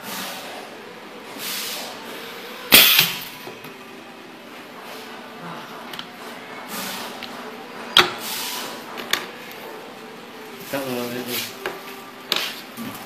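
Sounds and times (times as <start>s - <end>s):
pneumatic hiss: 0.0s - 0.6s, 1.3s - 3.3s, 6.7s - 7.2s, 8.0s - 8.9s.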